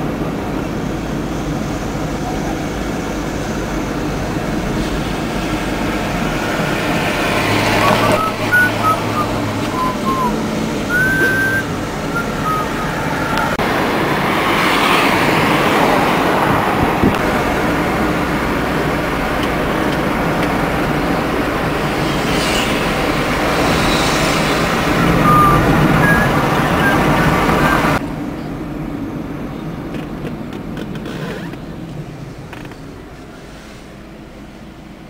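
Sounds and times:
tyre and engine rush: 0.0s - 28.4s
vehicles passing: 0.0s - 35.0s
short high whistles: 7.8s - 13.5s, 25.0s - 27.8s.

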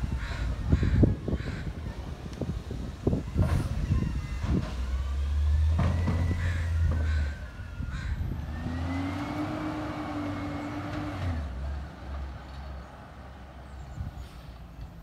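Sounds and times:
garbage truck engine revving: 4.4s - 12.3s.

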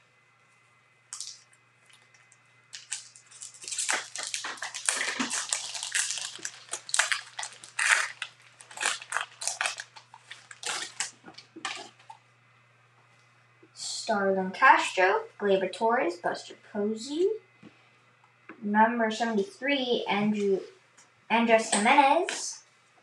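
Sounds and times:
plastic wrapper tearing and crumpling: 1.1s - 12.0s.

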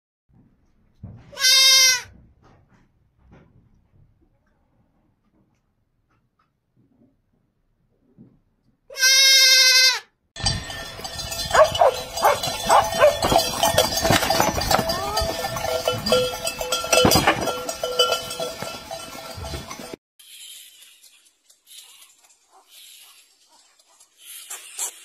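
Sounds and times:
goat kid bleating: 1.3s - 2.1s, 8.9s - 10.1s
knocks and clatter: 10.4s - 20.0s.

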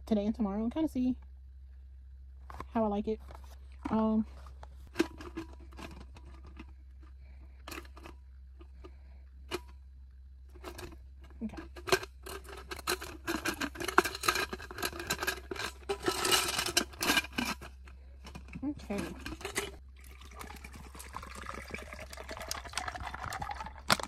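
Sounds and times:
plastic lid clicking and rattling: 11.6s - 19.8s, 20.6s - 24.0s.

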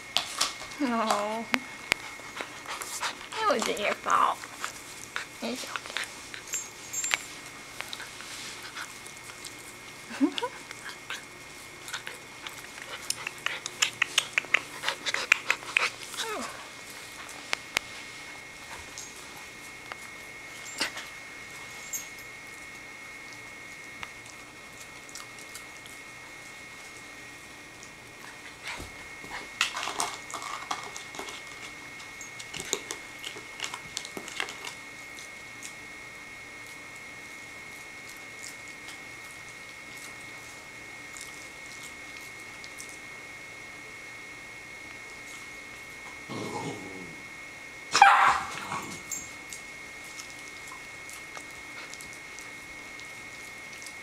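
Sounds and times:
puppy mouthing clicks and snaps: 3.6s - 9.6s, 10.3s - 16.2s, 28.8s - 35.8s, 41.1s - 43.0s, 48.9s - 54.0s
puppy yip: 48.0s - 48.5s.

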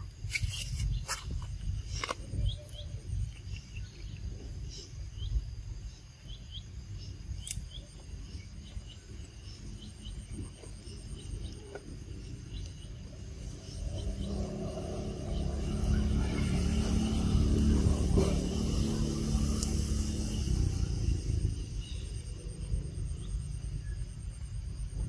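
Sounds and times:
low rumble: 0.0s - 25.0s
high-pitched insect drone: 2.1s - 25.0s
bird chirps: 2.3s - 22.5s.

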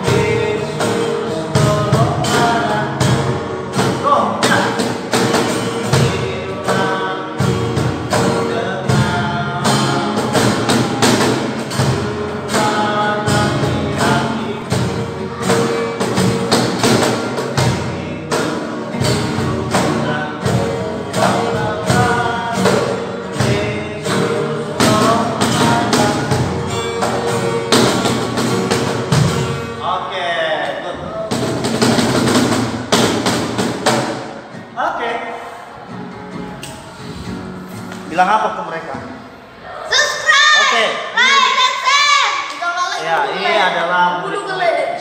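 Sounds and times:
thumping percussive beats: 0.0s - 29.8s, 30.9s - 34.8s
acoustic guitars strummed: 0.0s - 39.6s.

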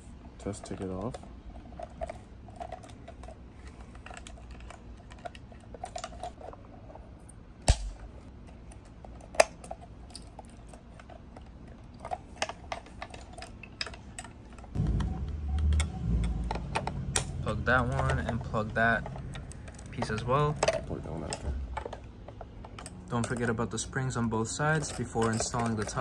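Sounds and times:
plastic clicks and rattles: 8.7s - 23.6s
low rumble: 14.8s - 18.0s.

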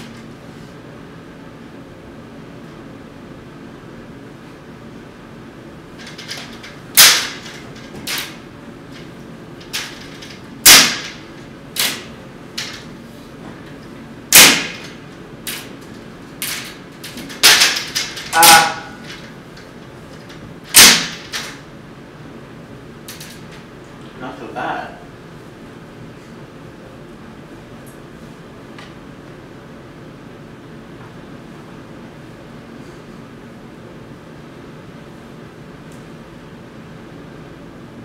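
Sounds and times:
sharp snaps or slaps: 20.7s - 21.6s.

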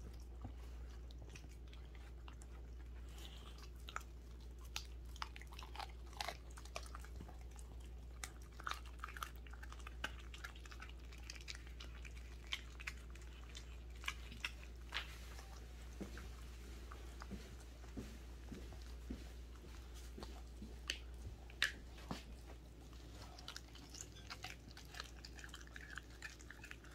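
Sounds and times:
dog chewing raw meat and bone: 0.0s - 26.9s.

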